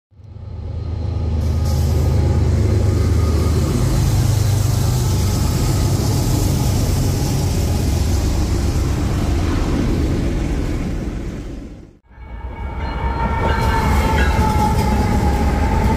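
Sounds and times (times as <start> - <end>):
locomotive engine drone: 0.1 - 15.9
wheels rumbling on rail: 0.1 - 15.9
hiss: 1.4 - 8.8.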